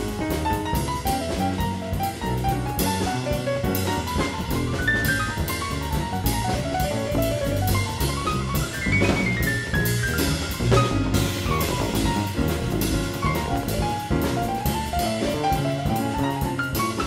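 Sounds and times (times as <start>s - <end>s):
drum kit beat: 0.0s - 17.0s
jazz melody of quick runs: 0.0s - 17.0s.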